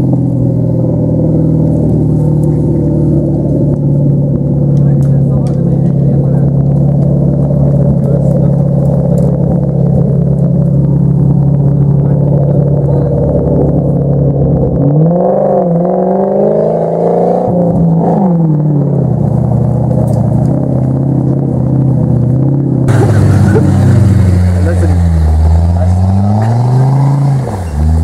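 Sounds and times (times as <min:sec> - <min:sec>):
engine revving: 0:00.0 - 0:28.0
tyres spinning in mud: 0:22.9 - 0:28.0.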